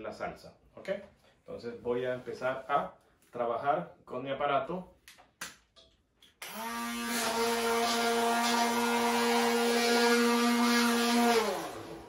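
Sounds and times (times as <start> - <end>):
immersion blender motor running: 6.4 - 12.0.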